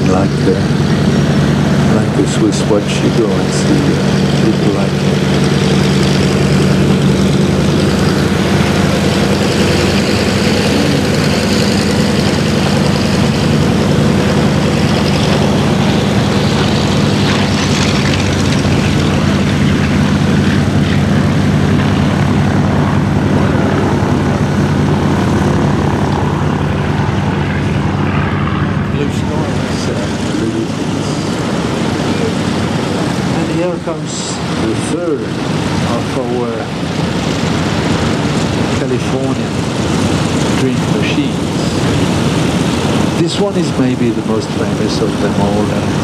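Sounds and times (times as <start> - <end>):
radial aircraft engines droning: 0.0 - 46.0.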